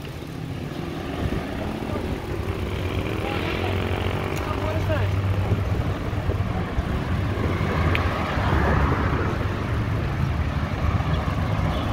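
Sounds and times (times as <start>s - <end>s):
road traffic rumble: 0.0s - 11.9s
wind on microphone: 5.2s - 10.2s.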